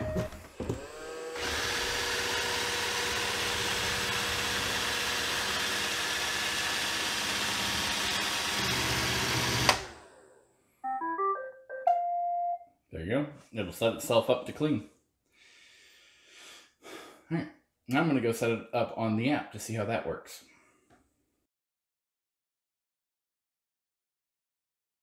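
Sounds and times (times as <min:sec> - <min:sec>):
beeping tune: 0:00.0 - 0:00.4, 0:10.8 - 0:12.7
robot vacuum motor whirring: 0:00.5 - 0:10.0.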